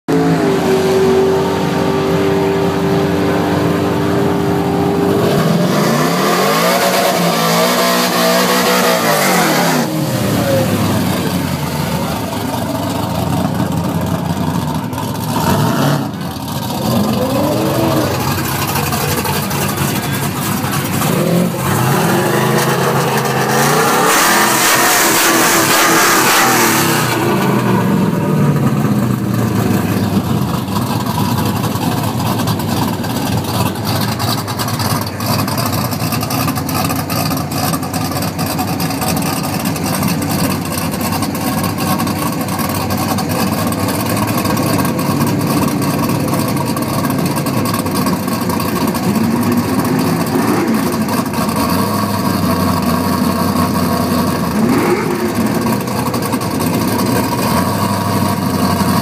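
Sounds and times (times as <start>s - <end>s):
truck engine revving: 0.1s - 59.0s.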